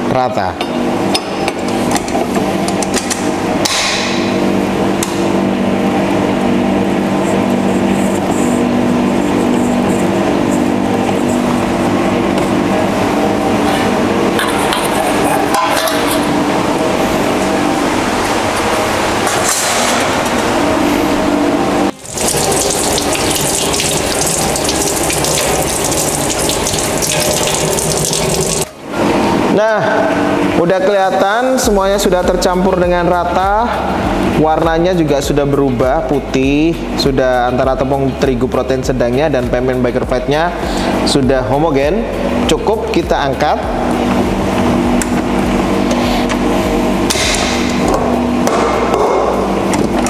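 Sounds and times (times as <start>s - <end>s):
mixer motor humming: 20.2s - 29.4s.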